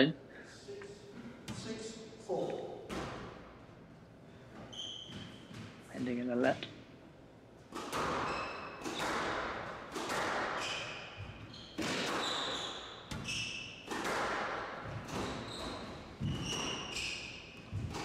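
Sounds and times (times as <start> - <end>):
squash ball hitting rackets and walls: 2.8 - 3.6, 7.6 - 18.0
shoes squeaking on wooden floor: 4.6 - 5.6, 10.6 - 13.8, 14.8 - 18.0.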